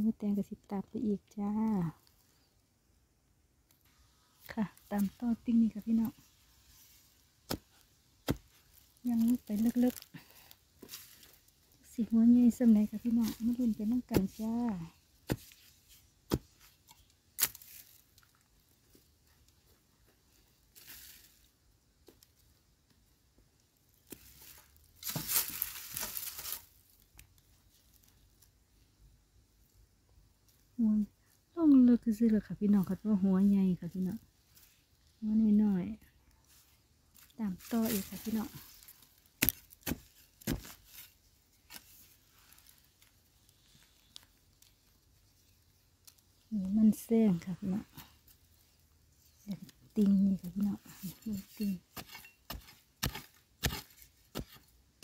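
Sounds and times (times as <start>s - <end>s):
scraping rustle of earth: 3.8s - 18.5s, 20.7s - 21.5s, 24.0s - 27.0s, 36.4s - 54.7s.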